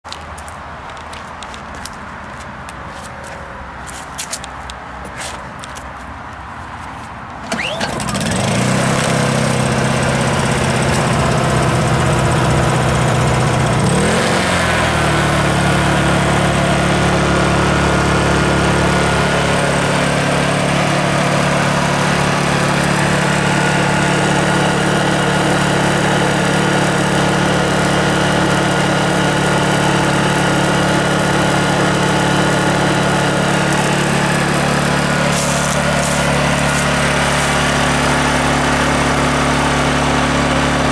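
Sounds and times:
generator engine running: 7.3s - 40.9s.

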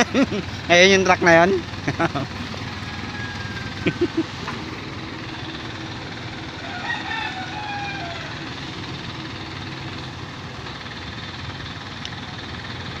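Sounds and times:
truck engine running: 0.0s - 13.0s.

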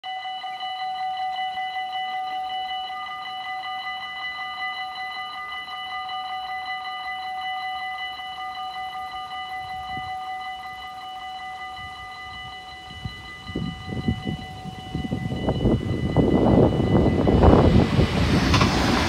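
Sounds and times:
level-crossing warning bell ringing: 0.0s - 19.0s.

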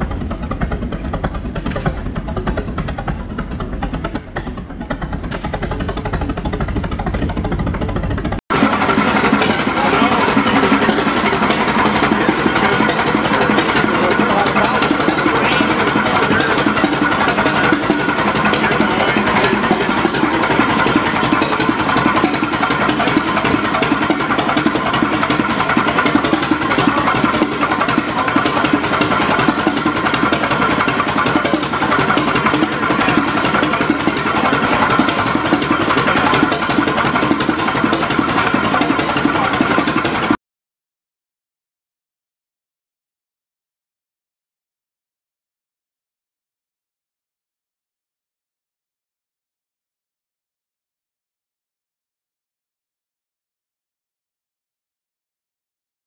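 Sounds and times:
stationary engine running: 0.0s - 40.4s.

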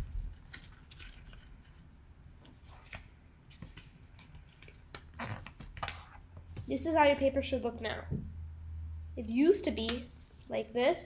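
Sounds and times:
paper rustling and crackling: 0.0s - 1.8s.

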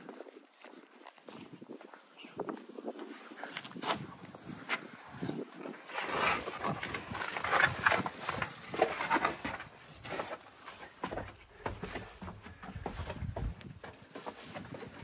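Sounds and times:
footsteps on brick stairs: 7.4s - 15.0s.

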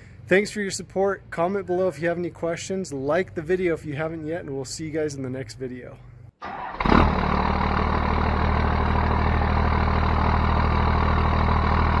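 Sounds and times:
diesel engine idling: 6.4s - 12.0s.

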